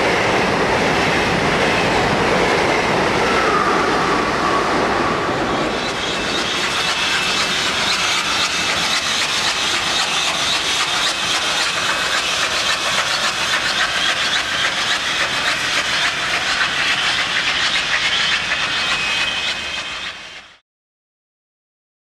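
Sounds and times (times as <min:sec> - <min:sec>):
steam hissing: 0:05.3 - 0:20.5
train wheels clattering on rails: 0:05.5 - 0:20.6.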